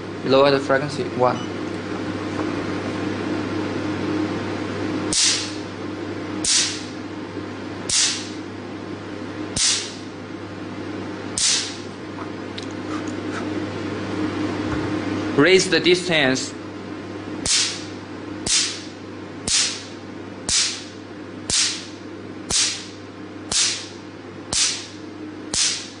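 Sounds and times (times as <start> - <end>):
machine hum: 0.0 - 26.0
laser pulses snapping with hiss: 5.1 - 5.7, 6.4 - 7.0, 7.9 - 8.4, 9.6 - 10.0, 11.4 - 11.9, 17.4 - 19.9, 20.5 - 20.9, 21.5 - 26.0.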